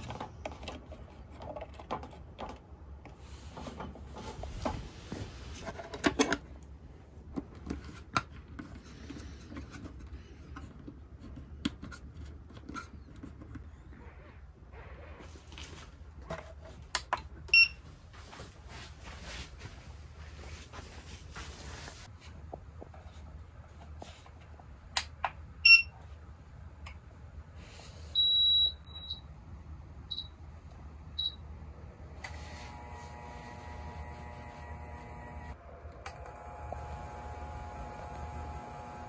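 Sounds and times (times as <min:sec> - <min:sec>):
steady electrical hum: 0:28.7 - 0:39.0.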